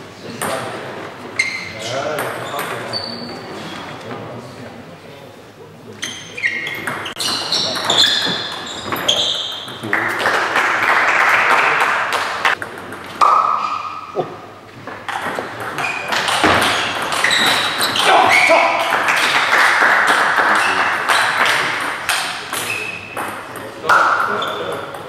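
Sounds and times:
sneakers squeaking on wooden floor: 1.2s - 3.9s, 6.0s - 9.8s, 14.8s - 19.5s, 20.5s - 23.6s, 24.2s - 25.0s.

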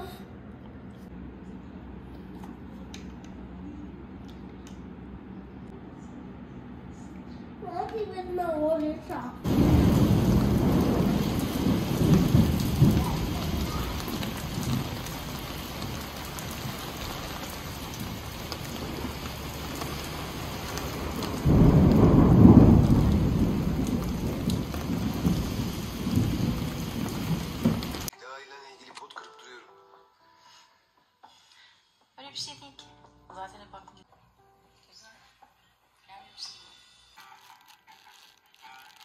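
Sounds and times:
steady rain: 9.4s - 28.1s
thunder rumbling: 9.4s - 28.1s.

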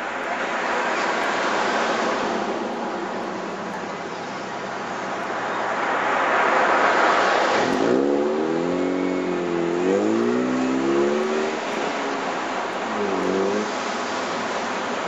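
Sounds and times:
tyre and road noise: 0.0s - 15.0s
car engine accelerating: 7.5s - 15.0s.

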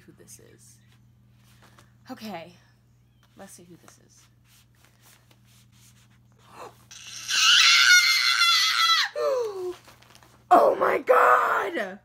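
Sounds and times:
faint rustling of pages: 0.8s - 2.0s, 3.2s - 6.5s, 9.4s - 10.5s
woman squealing with delight: 6.9s - 9.7s
woman whimpering: 9.2s - 9.8s.

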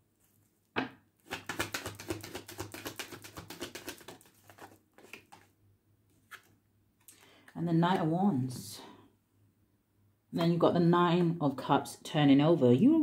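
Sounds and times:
cards being shuffled: 1.2s - 5.5s, 6.1s - 7.4s.

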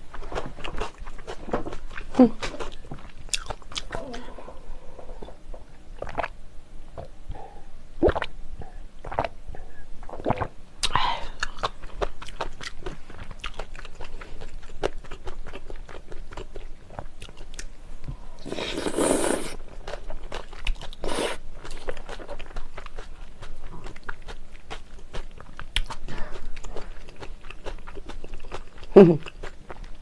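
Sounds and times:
close chewing of noodles: 0.1s - 4.1s, 10.1s - 17.7s, 18.4s - 30.0s
slurping: 18.4s - 19.6s.

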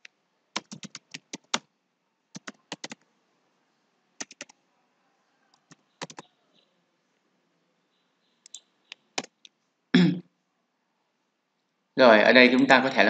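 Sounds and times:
keyboard typing: 0.6s - 1.7s, 2.3s - 3.0s, 4.2s - 4.6s, 5.5s - 6.3s, 8.4s - 9.5s.

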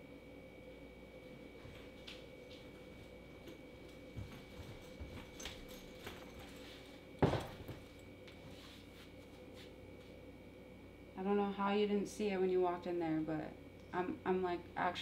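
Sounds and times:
light knocks and steps: 1.6s - 10.2s
suitcase thumping down: 7.2s - 7.8s.

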